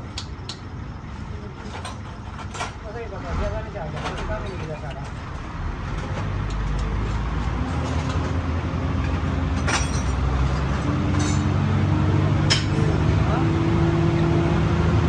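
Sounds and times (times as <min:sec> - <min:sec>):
engine running: 0:03.1 - 0:15.0
tools clinking on metal: 0:09.5 - 0:10.2, 0:11.1 - 0:11.5.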